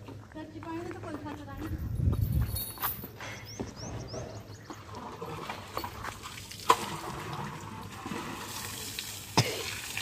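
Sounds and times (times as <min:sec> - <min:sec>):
water running from hose: 0:05.8 - 0:10.0.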